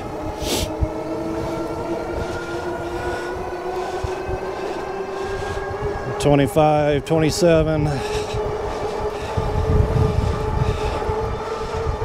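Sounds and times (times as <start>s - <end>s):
wind rumble: 0.0s - 12.0s.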